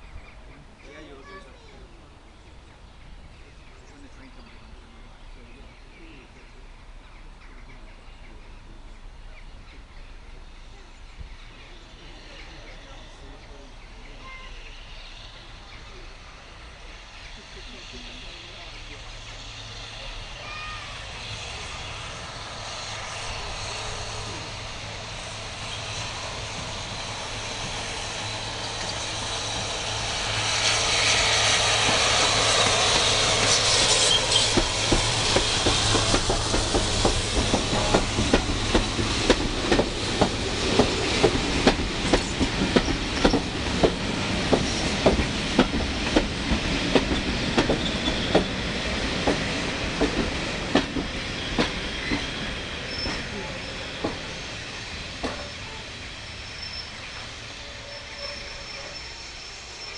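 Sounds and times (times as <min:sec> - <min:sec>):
steam engine rumble: 0:00.0 - 0:59.9
loud steam hiss: 0:08.6 - 0:59.9
train wheels clickety-clack: 0:17.3 - 0:57.9.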